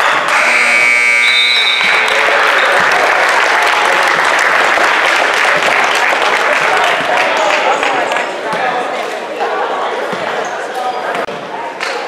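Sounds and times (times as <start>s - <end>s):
scoreboard buzzer: 0.0s - 2.7s
crowd applause and cheering: 1.2s - 8.3s.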